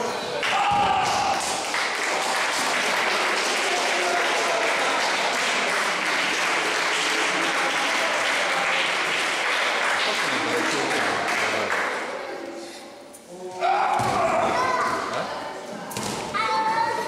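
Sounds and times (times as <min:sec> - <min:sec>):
audience clapping: 0:00.4 - 0:12.2.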